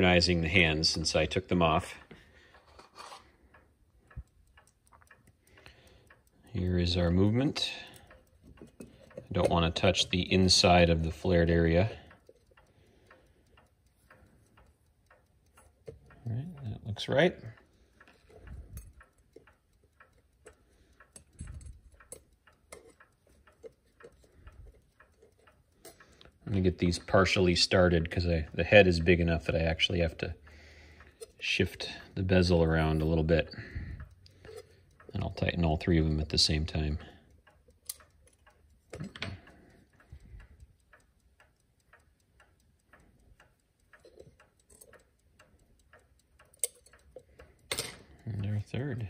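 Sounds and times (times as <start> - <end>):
clock ticking: 0.0 - 49.0
screwdriver clicking on metal: 21.2 - 26.1, 46.4 - 48.2.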